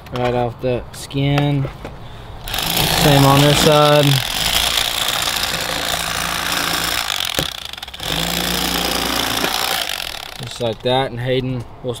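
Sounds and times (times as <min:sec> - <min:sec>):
electric knife buzzing: 0:02.4 - 0:10.8.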